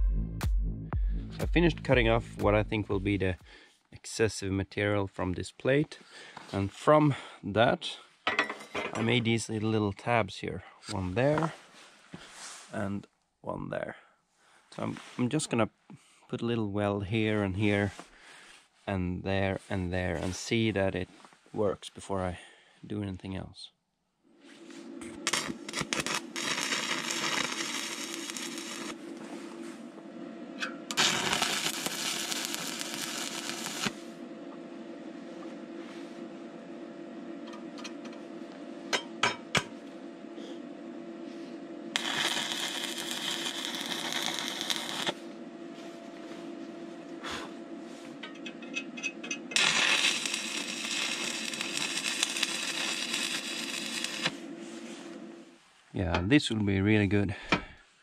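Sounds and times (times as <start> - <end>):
steady hum: 1.0 - 11.6, 24.2 - 58.0
welding arc crackling: 25.1 - 29.0, 30.9 - 34.1, 41.9 - 45.2, 49.5 - 54.5.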